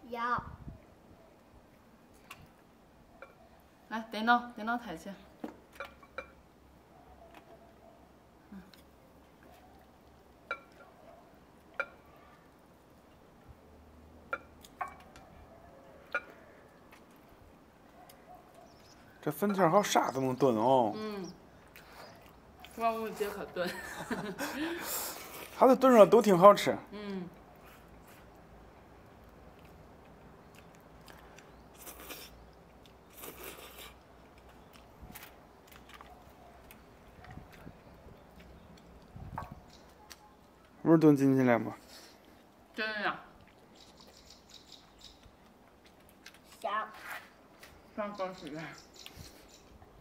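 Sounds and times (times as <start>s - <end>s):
quiet chewing: 6.9s - 13.2s, 14.3s - 19.2s, 21.0s - 23.4s, 27.2s - 40.8s, 41.9s - 50.0s.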